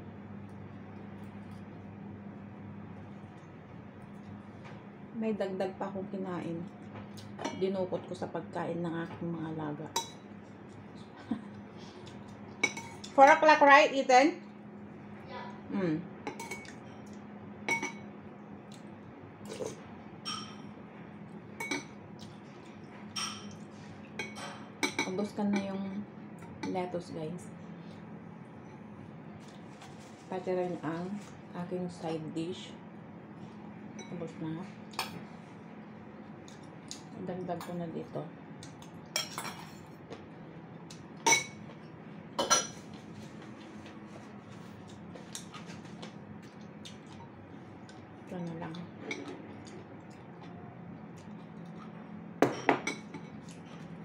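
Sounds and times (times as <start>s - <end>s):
utensils clinking against dishes: 12.6s - 13.4s, 16.3s - 18.1s, 19.5s - 20.7s, 21.6s - 22.0s, 23.1s - 23.6s, 24.2s - 26.8s, 39.2s - 39.9s, 41.2s - 41.6s, 42.4s - 42.9s, 48.4s - 50.5s.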